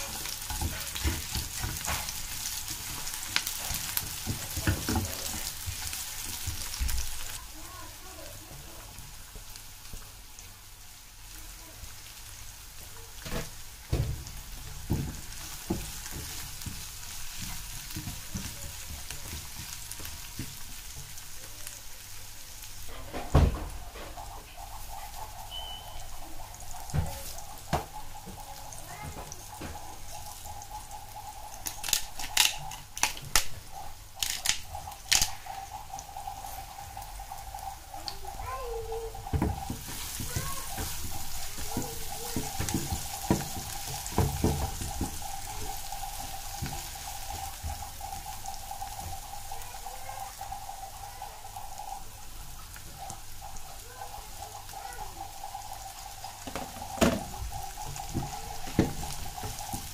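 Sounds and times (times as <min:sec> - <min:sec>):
onions sizzling in oil: 0:00.0 - 0:59.9
seasoning shaker clicks and rattles: 0:29.5 - 0:38.2
spatula scraping a pan: 0:35.6 - 0:49.2.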